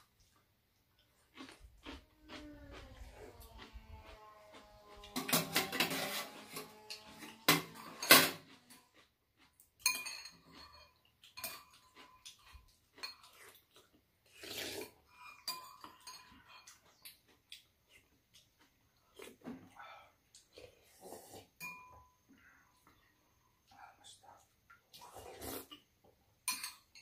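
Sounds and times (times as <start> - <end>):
spoons clinking on bowls: 9.8 - 13.5, 15.1 - 16.9, 21.6 - 22.2, 26.4 - 27.0.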